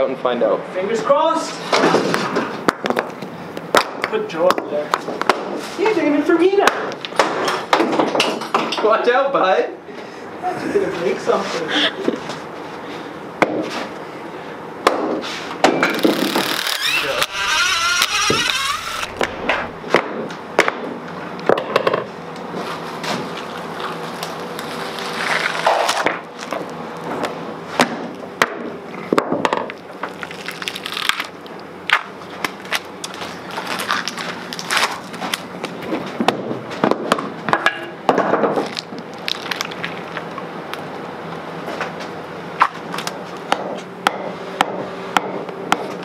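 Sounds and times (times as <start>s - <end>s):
tape ripping: 15.9s - 19.8s, 23.3s - 26.7s, 30.0s - 35.5s, 38.6s - 40.3s
epoxy cracking: 15.9s - 20.4s, 23.3s - 27.1s, 29.7s - 35.5s, 38.6s - 40.8s.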